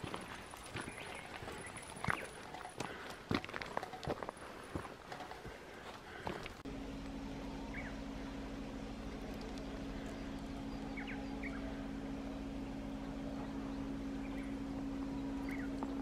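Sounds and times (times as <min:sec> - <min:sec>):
low machine hum: 0:00.0 - 0:16.0
faint bird chirps: 0:07.4 - 0:08.4, 0:09.0 - 0:16.0.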